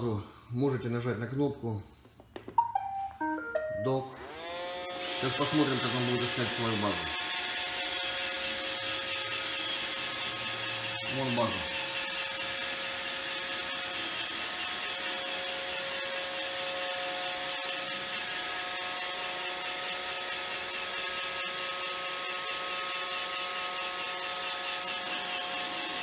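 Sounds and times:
robot vacuum running: 4.1s - 19.0s, 22.4s - 26.0s.

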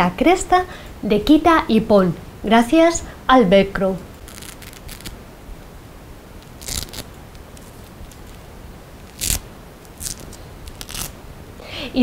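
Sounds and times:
faint velcro crackles: 4.0s - 5.2s, 6.4s - 11.2s
velcro ripping apart: 4.0s - 5.2s, 6.4s - 11.2s.

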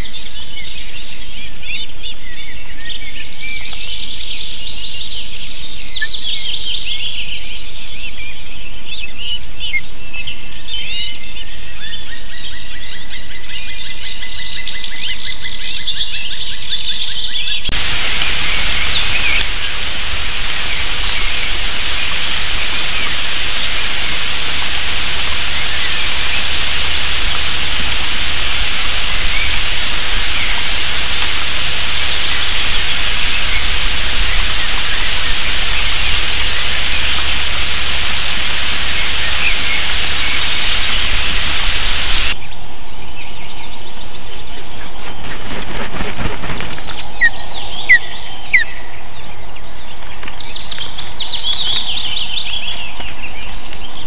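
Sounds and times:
rain hiss: 17.7s - 42.4s.

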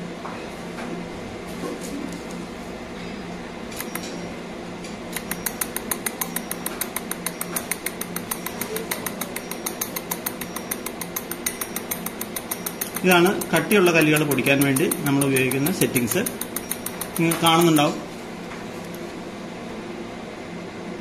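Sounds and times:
fan hum: 0.0s - 21.0s
laser pulses clicking: 5.1s - 18.0s.

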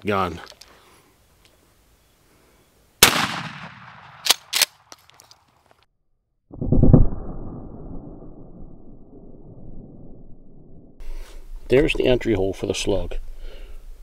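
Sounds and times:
shotgun blast with echo: 3.0s - 4.3s.

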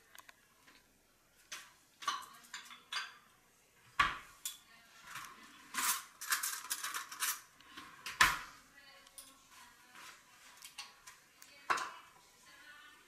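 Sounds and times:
dishes clicking and knocking: 1.5s - 3.3s, 4.0s - 8.5s, 10.6s - 12.1s
glass jars clinking and rattling: 5.7s - 7.5s.

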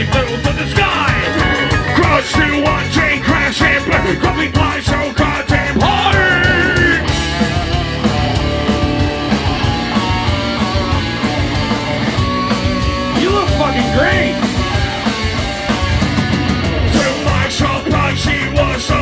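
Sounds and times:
person singing: 0.0s - 7.1s
drums at a steady beat: 0.0s - 19.0s
electric guitar: 0.0s - 19.0s.

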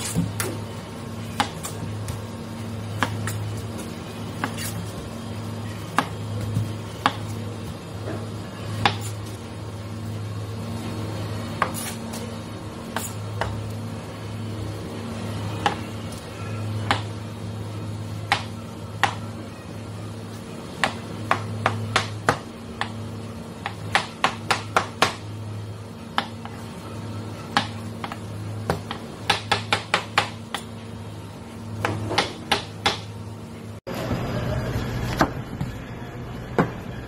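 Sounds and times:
steady low hum: 0.0s - 37.0s
knife cutting watermelon: 4.4s - 4.9s.

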